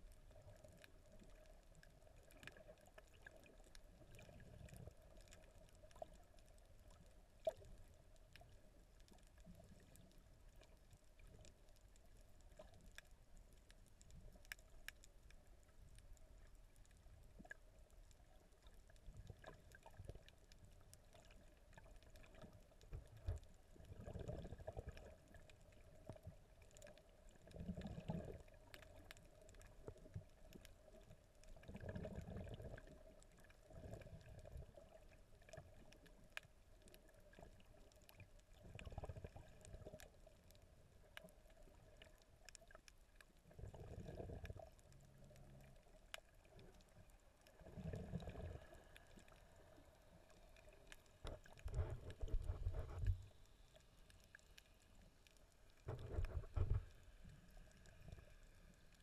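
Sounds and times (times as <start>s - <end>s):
faint clicks: 0.0s - 23.9s, 44.0s - 47.9s, 48.5s - 59.0s
underwater water sloshing: 0.0s - 59.0s.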